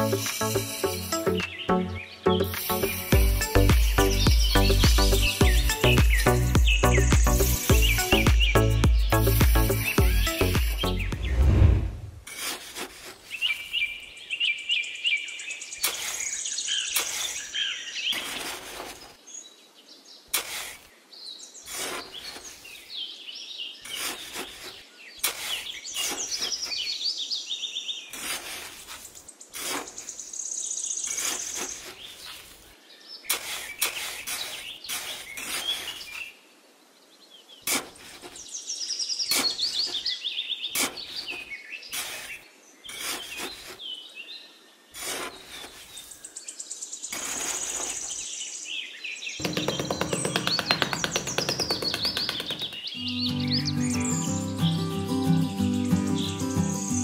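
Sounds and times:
trowel scraping damp sand: 0:00.0 - 0:01.6, 0:02.4 - 0:08.3, 0:09.0 - 0:13.9, 0:15.8 - 0:19.2, 0:20.3 - 0:21.0, 0:21.6 - 0:22.9, 0:23.8 - 0:27.0, 0:28.1 - 0:30.2, 0:31.0 - 0:36.3, 0:37.6 - 0:38.5, 0:39.3 - 0:40.1, 0:40.7 - 0:44.0, 0:44.9 - 0:46.3, 0:47.1 - 0:48.3
birds chirping: 0:00.0 - 0:12.1, 0:13.2 - 0:24.4, 0:38.4 - 0:57.0.

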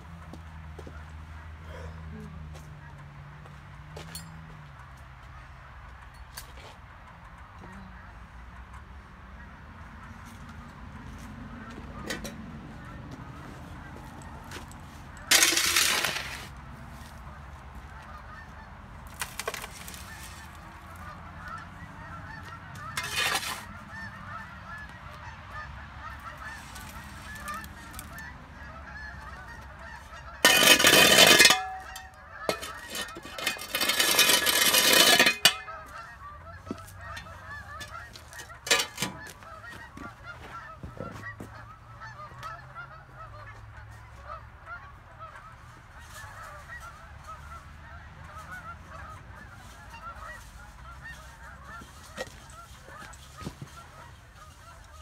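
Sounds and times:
dirt and gravel pouring into truck bed: 0:15.3 - 0:16.5.

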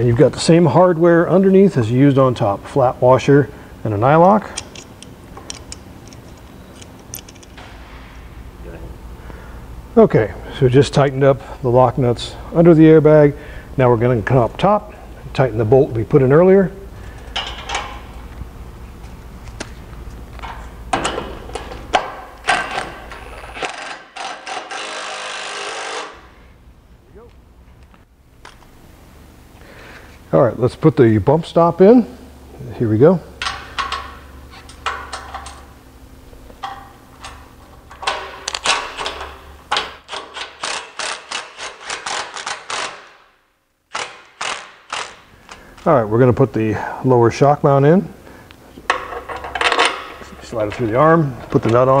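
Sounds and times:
metal parts clinking and knocking: 0:04.5 - 0:07.6, 0:17.2 - 0:18.0, 0:33.4 - 0:35.7, 0:48.9 - 0:50.9
hand ratchet clicking: 0:23.6 - 0:26.2, 0:36.6 - 0:43.1, 0:43.9 - 0:45.6.

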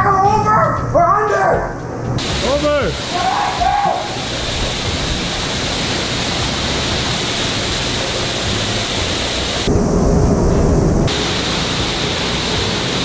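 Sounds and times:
spray nozzles hissing: 0:02.2 - 0:09.7, 0:11.1 - 0:13.0.

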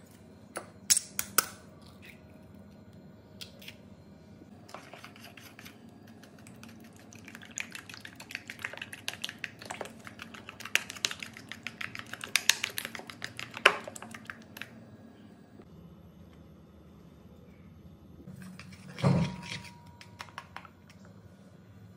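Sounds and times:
spoon clinking and scraping bowl: 0:18.4 - 0:21.0.

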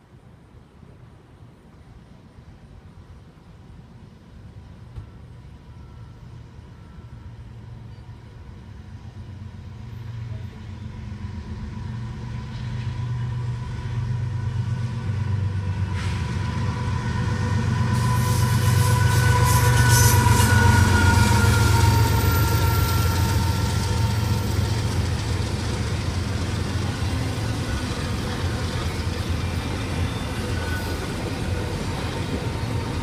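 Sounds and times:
diesel locomotive engine rumble: 0:00.2 - 0:33.0
train wheels rattling on rails: 0:09.3 - 0:33.0.

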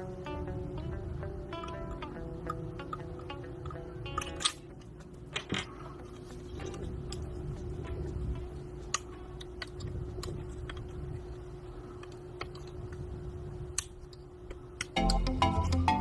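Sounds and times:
music: 0:00.0 - 0:10.4, 0:14.8 - 0:16.0
steady hum: 0:00.0 - 0:16.0
small parts clicking and tapping: 0:01.6 - 0:07.3.

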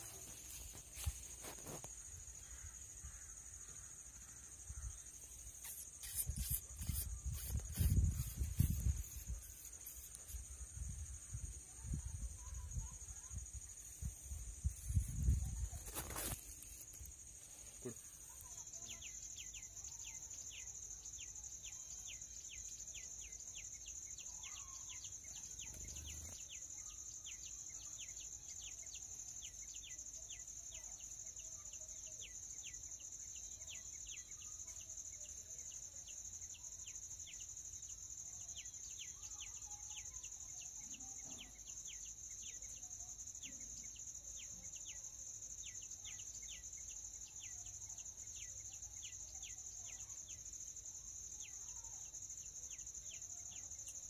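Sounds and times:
cricket trill: 0:00.0 - 0:54.0
short falling insect chirps: 0:05.5 - 0:10.5.

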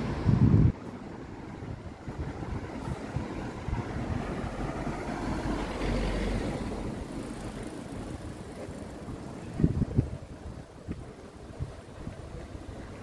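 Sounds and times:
vehicle passing by: 0:02.4 - 0:09.7.

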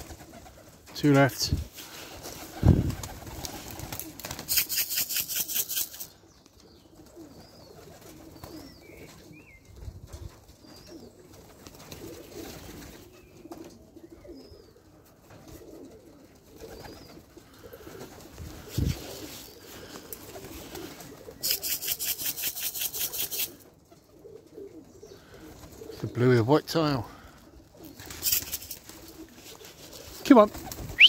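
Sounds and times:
pigeon wings flapping: 0:00.0 - 0:01.0, 0:01.6 - 0:06.1, 0:07.0 - 0:09.3, 0:11.2 - 0:13.7, 0:15.4 - 0:24.7, 0:27.8 - 0:31.0
pigeon cooing: 0:02.2 - 0:06.2, 0:10.7 - 0:26.1, 0:27.1 - 0:31.0
small birds chirping: 0:04.3 - 0:11.4, 0:12.8 - 0:14.9, 0:16.6 - 0:17.9, 0:18.5 - 0:23.6, 0:24.2 - 0:27.0, 0:27.6 - 0:31.0.

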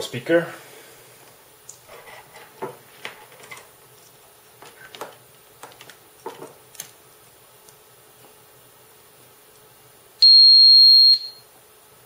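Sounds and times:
wires and clips clicking: 0:04.9 - 0:07.0.

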